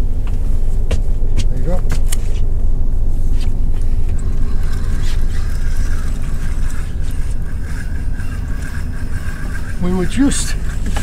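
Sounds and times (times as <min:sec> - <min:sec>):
boat low rumble: 0:00.0 - 0:11.0
faint wavering whine: 0:02.5 - 0:11.0.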